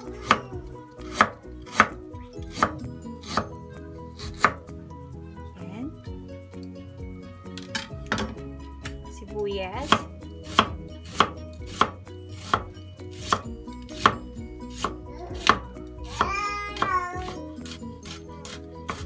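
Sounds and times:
knife slicing onion on board: 0.2 - 3.6, 4.2 - 4.6, 9.8 - 19.0.

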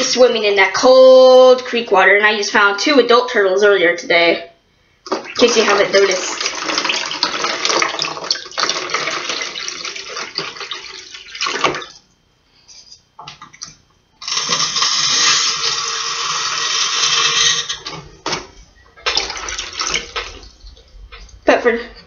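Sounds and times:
sink tap running: 5.1 - 12.0, 13.2 - 21.6
water pouring and splashing: 5.1 - 12.0, 19.0 - 21.3.

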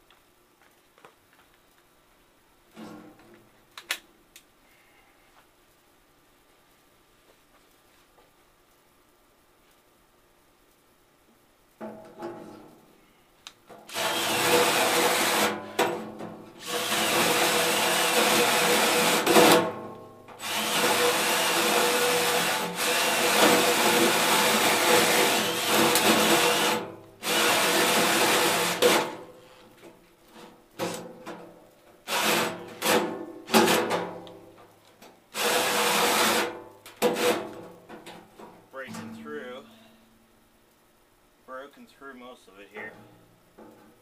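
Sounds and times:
drill hole saw cutting metal: 13.9 - 15.6, 16.6 - 19.6, 20.4 - 29.2, 32.1 - 33.0, 35.4 - 36.5.

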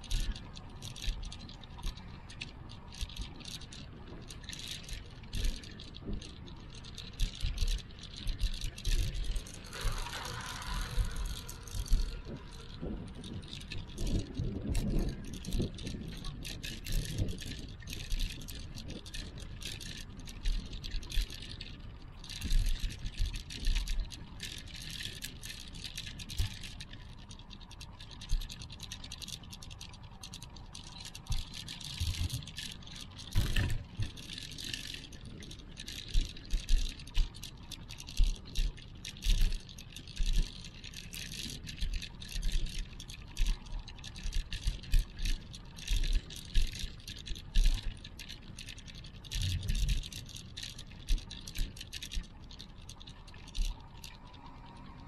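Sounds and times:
faint outdoor ambience: 0.0 - 55.0
rattling scratchy hiss: 9.4 - 13.2.

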